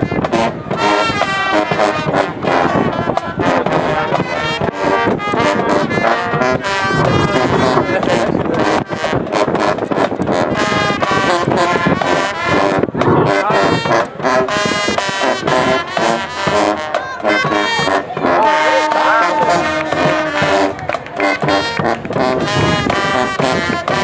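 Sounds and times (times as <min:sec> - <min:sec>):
brass horns: 0:00.0 - 0:24.0
drums beating: 0:00.0 - 0:24.0.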